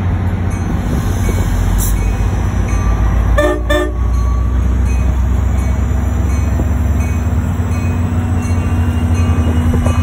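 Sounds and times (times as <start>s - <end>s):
diesel locomotive engine rumble: 0.0s - 10.0s
train horn blasts: 3.4s - 4.1s.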